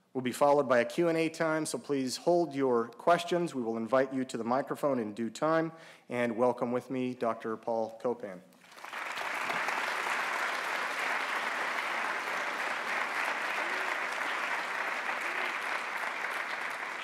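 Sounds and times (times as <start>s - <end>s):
audience applauding: 8.6s - 17.0s.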